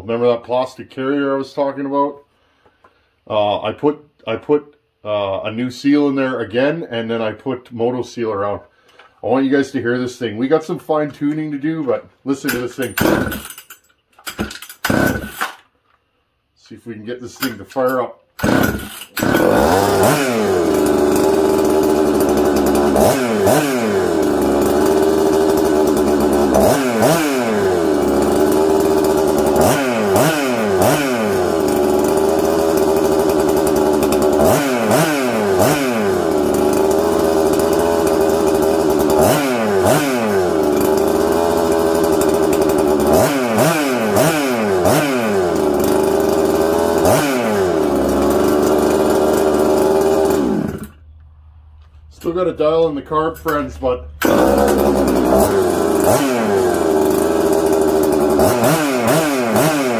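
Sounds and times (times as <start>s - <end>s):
chainsaw engine revving: 12.4s - 13.6s, 14.3s - 15.7s, 18.4s - 51.0s, 53.5s - 59.9s.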